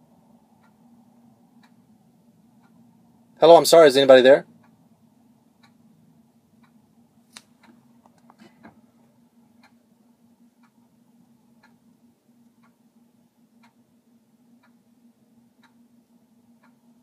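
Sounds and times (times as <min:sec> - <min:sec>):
low steady hum: 0:00.0 - 0:17.0
faint ticks: 0:15.6 - 0:15.9, 0:16.6 - 0:16.9.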